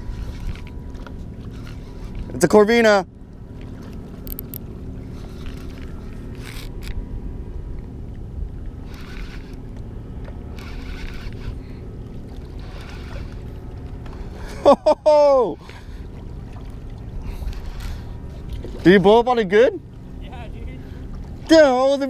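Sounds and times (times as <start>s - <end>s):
water at shoreline: 0.0s - 22.0s
wind: 0.0s - 22.0s
person calling out: 14.9s - 15.6s.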